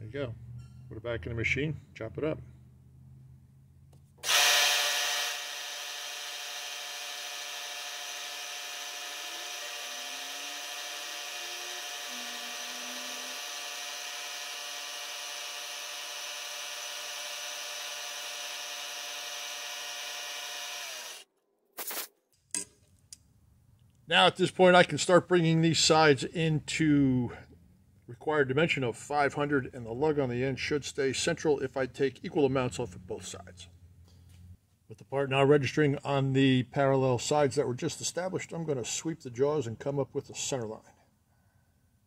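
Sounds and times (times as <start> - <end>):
milling machine whine: 4.2 - 21.2.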